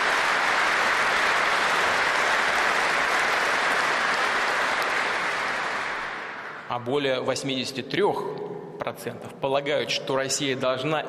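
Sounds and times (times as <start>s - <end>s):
audience applauding: 0.0s - 6.9s.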